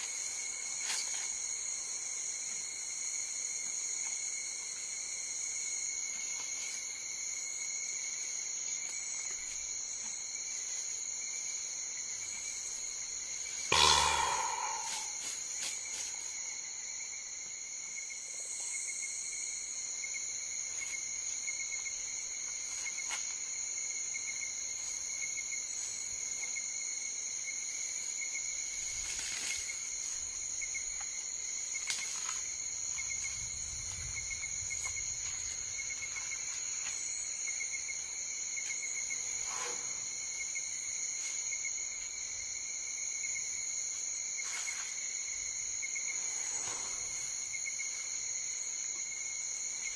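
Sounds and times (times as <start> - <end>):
insects trilling: 0.0 - 49.9.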